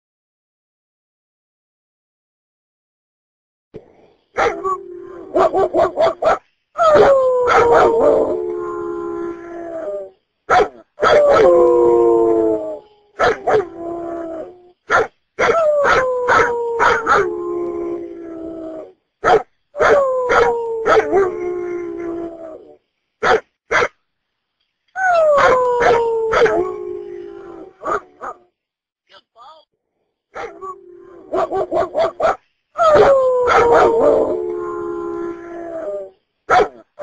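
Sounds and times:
dog howling: 0:04.4 - 0:14.7, 0:15.4 - 0:18.9, 0:19.8 - 0:22.8, 0:25.0 - 0:28.4, 0:30.4 - 0:36.8.

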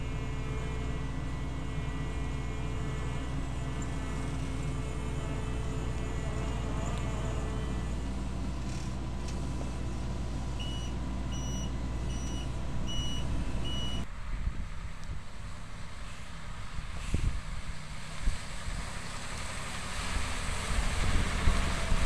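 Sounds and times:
faint rumble: 0:00.0 - 0:18.8
combine harvester running: 0:00.0 - 0:22.0
electronic warning beeps: 0:10.6 - 0:14.0
wind noise: 0:12.8 - 0:19.0, 0:20.0 - 0:22.0.

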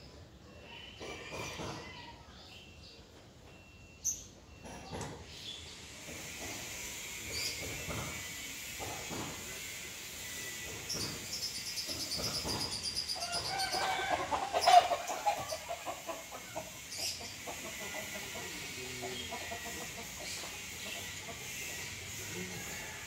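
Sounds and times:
loud pitched fowl call: 0:13.2 - 0:16.9
fowl chattering: 0:13.2 - 0:23.0.

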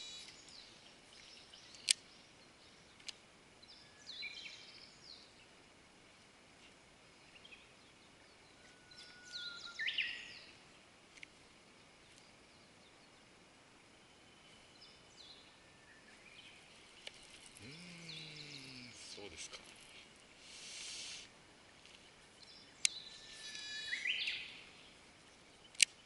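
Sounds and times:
birds chirping and calling: 0:14.9 - 0:21.3, 0:21.9 - 0:26.0.

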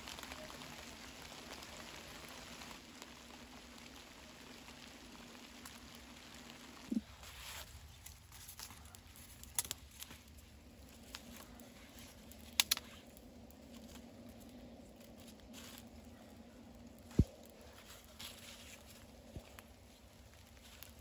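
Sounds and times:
small fire crackling and snapping: 0:00.0 - 0:21.0.

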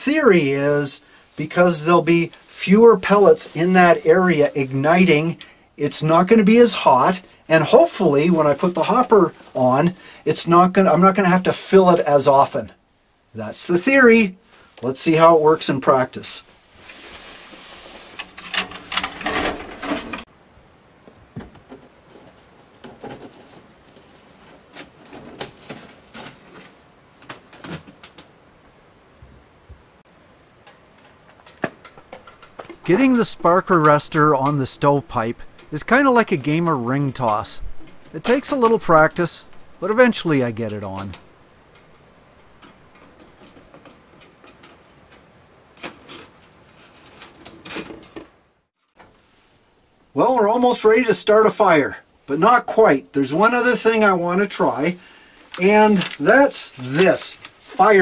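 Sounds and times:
metal stove parts clattering: 0:18.2 - 0:20.2, 0:31.2 - 0:33.4.

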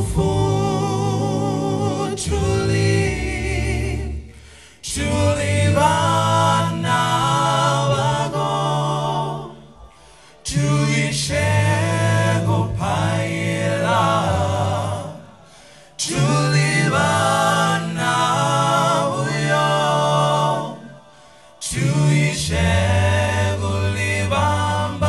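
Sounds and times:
men singing a cappella: 0:00.0 - 0:25.0.

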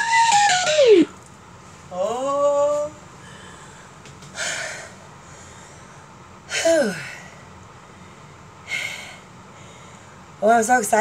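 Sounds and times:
woman breathing hard: 0:03.2 - 0:10.3.

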